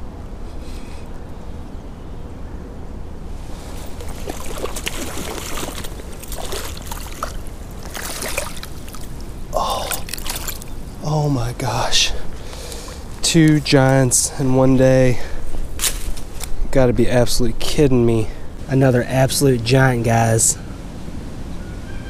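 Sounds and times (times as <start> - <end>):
fish thrashing and splashing: 3.5 - 11.0.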